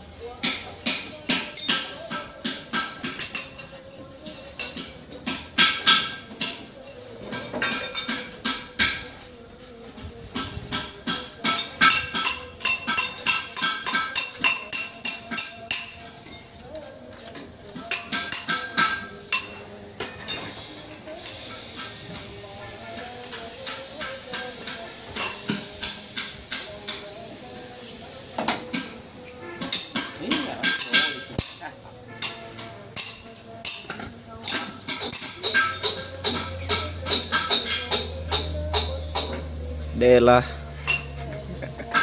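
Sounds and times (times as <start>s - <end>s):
hammer blows on metal: 10.3s - 16.5s.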